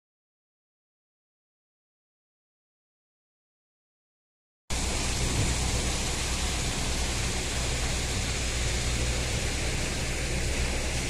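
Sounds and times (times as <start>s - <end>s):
constant even hiss: 4.7s - 11.0s
steady low hum: 4.7s - 11.0s.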